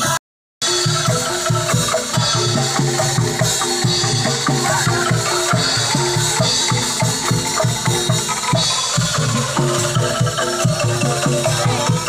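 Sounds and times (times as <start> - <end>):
music with drum beat and bass: 0.0 - 12.0.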